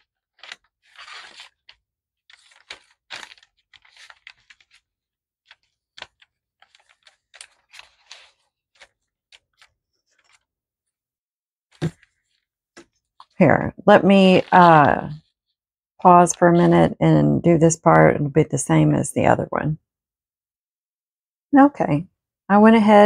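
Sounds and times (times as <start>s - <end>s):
paper rustling and crinkling: 0.0s - 10.5s, 11.8s - 13.4s.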